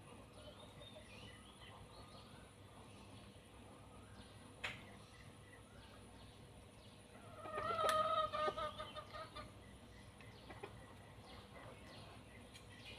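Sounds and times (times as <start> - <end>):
chicken clucking: 7.2 - 9.6, 10.2 - 12.2.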